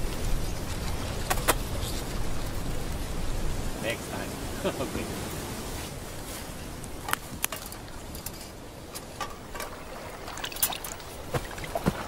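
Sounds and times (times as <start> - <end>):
dry reeds rustling and crackling: 0.0 - 4.3, 5.6 - 12.0
steady low hiss: 0.0 - 12.0.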